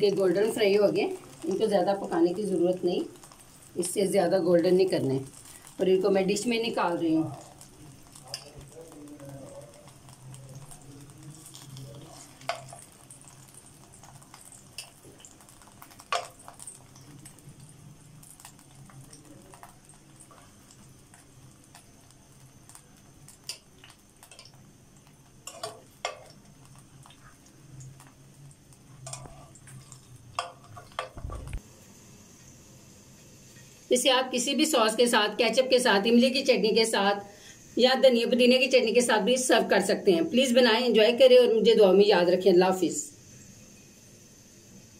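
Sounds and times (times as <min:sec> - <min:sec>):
oil sizzling: 0:00.0 - 0:44.9
metal tongs clinking on a pan: 0:08.0 - 0:08.7, 0:11.4 - 0:13.4, 0:14.0 - 0:15.4, 0:16.0 - 0:17.4, 0:22.7 - 0:24.6, 0:25.4 - 0:26.8, 0:28.9 - 0:31.2.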